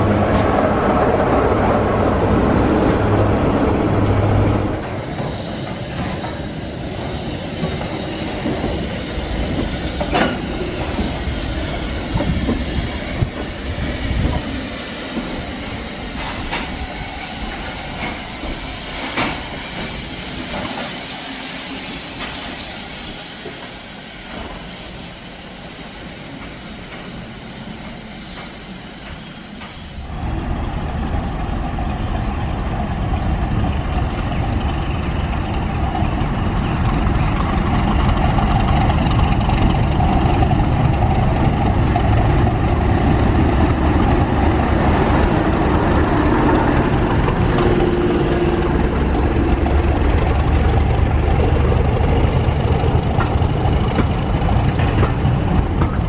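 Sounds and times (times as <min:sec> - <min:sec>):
diesel locomotive passing: 0:00.0 - 0:56.0
steam hissing: 0:04.6 - 0:30.6
train wheels clicking over rail joints: 0:04.7 - 0:21.3, 0:21.9 - 0:30.5, 0:31.3 - 0:56.0.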